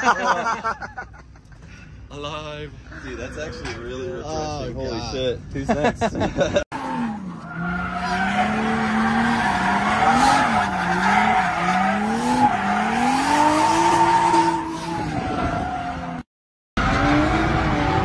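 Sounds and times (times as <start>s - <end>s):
car engine revving: 6.7s - 15.2s
tire squeal: 6.8s - 16.2s.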